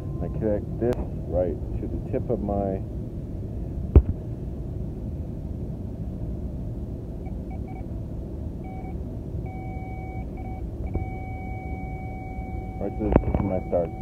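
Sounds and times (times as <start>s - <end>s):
low rumble: 0.0s - 14.0s
circuit tester beeping: 8.7s - 14.0s.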